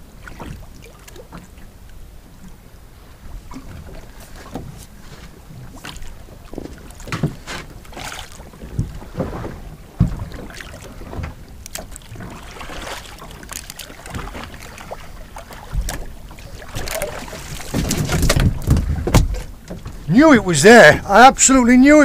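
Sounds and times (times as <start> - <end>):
water splashing: 0.0 - 1.7, 3.2 - 22.0
knocks from fishing gear: 6.6 - 7.7, 8.7 - 10.4, 16.8 - 20.0
wind on microphone: 14.1 - 21.4.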